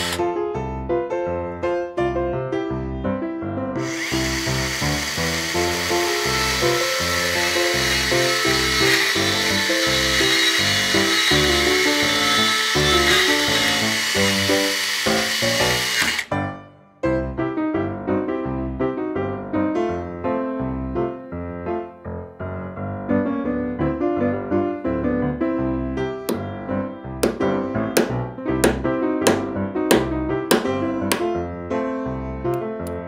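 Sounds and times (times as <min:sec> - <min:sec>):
small chainsaw cutting wood: 0:00.0 - 0:00.2, 0:03.8 - 0:16.4
bouncy keyboard music: 0:00.0 - 0:33.0.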